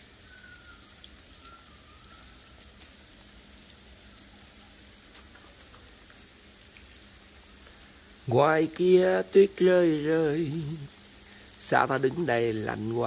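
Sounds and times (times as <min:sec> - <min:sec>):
ice pellets ticking on cars: 0:04.6 - 0:09.5.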